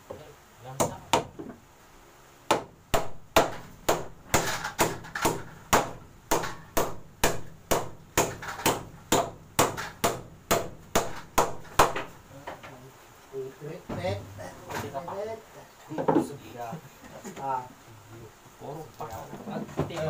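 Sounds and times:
hammer striking wood: 0.8 - 1.6, 2.5 - 12.2.

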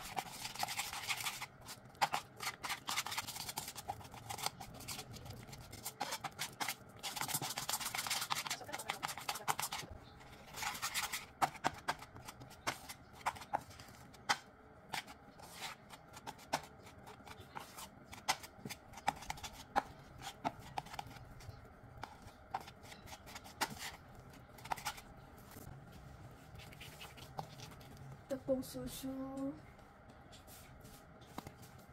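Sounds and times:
spatula scraping dough in bowl: 0.0 - 25.1.

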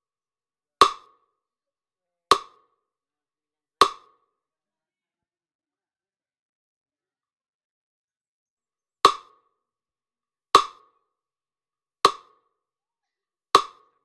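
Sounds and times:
metronome ticking: 2.3 - 2.6, 3.8 - 4.2, 9.1 - 9.4, 12.1 - 12.4, 13.6 - 13.9.

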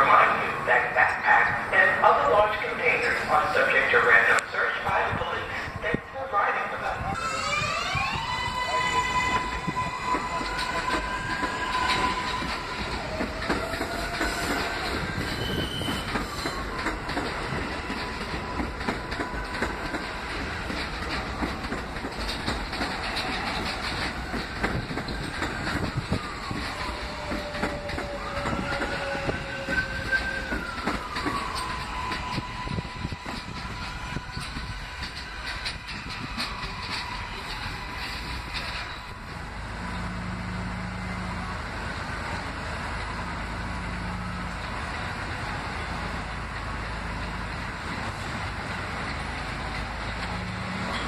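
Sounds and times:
train motor whine: 7.2 - 46.4
wheels clicking over rail joints: 9.0 - 40.1.

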